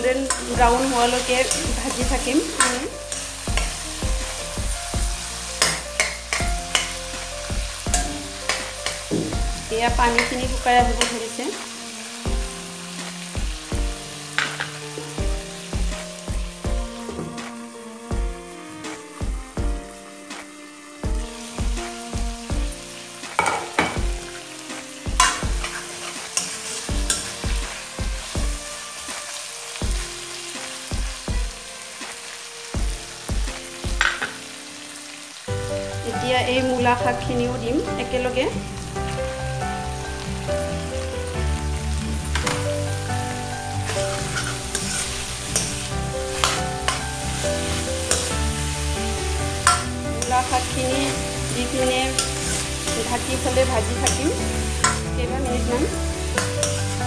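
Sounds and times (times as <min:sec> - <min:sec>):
metal spatula scraping a pan: 0:00.0 - 0:13.4, 0:14.0 - 0:15.7, 0:22.9 - 0:29.8, 0:34.0 - 0:35.2, 0:43.8 - 0:57.0
meat sizzling: 0:00.0 - 0:57.0
music with a steady beat: 0:00.6 - 0:11.1, 0:12.1 - 0:14.4, 0:15.0 - 0:32.2, 0:32.8 - 0:34.5, 0:38.6 - 0:50.2.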